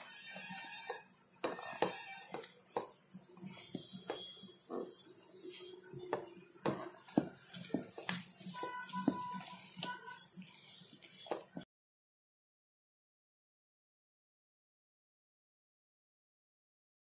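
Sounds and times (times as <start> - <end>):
hand kneading dough in bowl: 0.0 - 11.7.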